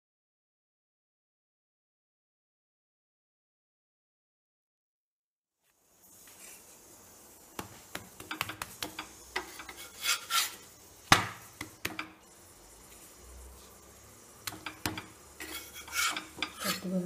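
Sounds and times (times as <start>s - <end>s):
metal spatula scraping a griddle: 8.3s - 10.8s, 14.6s - 17.0s.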